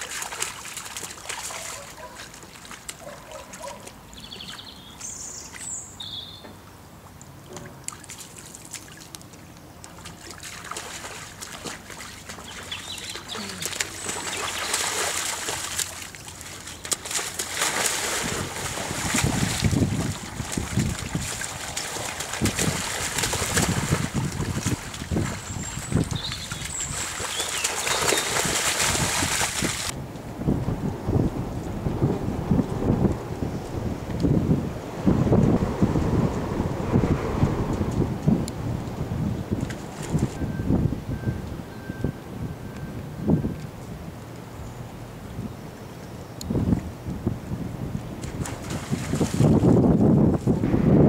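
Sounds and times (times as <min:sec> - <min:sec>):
animals splashing through water: 0:00.0 - 0:04.7, 0:07.4 - 0:30.0, 0:48.2 - 0:50.0
bird chirps: 0:04.2 - 0:06.6, 0:12.4 - 0:14.8, 0:25.4 - 0:28.4.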